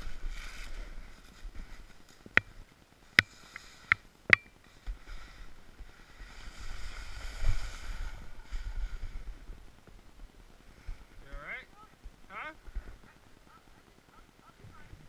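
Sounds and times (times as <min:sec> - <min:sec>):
snowboard carving through snow: 0:00.0 - 0:02.2, 0:04.7 - 0:09.7.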